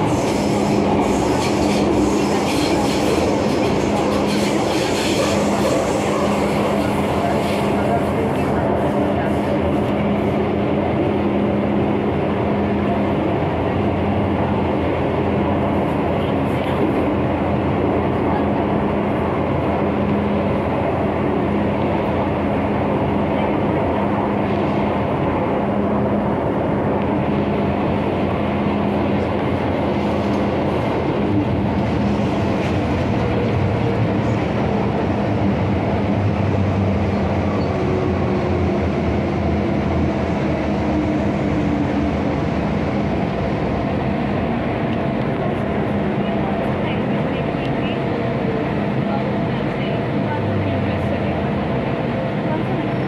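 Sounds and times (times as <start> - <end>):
train wheels rumbling: 0.0 - 53.0.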